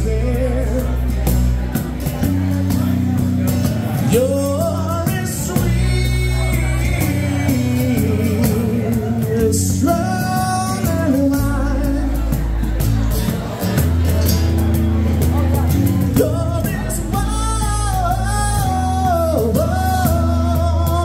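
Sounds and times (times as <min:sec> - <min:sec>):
person singing: 0:00.0 - 0:01.3, 0:04.0 - 0:12.7, 0:16.1 - 0:21.0
acoustic guitar: 0:00.0 - 0:21.0
cajon drum: 0:00.0 - 0:21.0
electric bass: 0:00.0 - 0:21.0.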